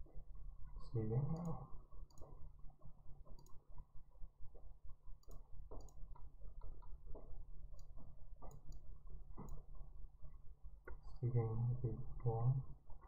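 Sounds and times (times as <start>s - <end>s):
low steady hum: 0.0s - 13.0s
light clicks: 1.1s - 3.7s, 4.6s - 9.8s.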